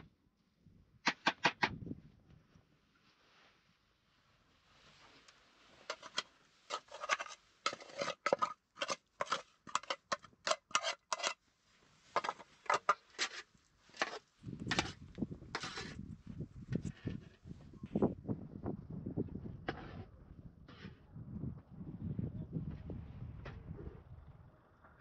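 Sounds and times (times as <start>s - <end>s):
scraping strokes: 5.7s - 16.0s.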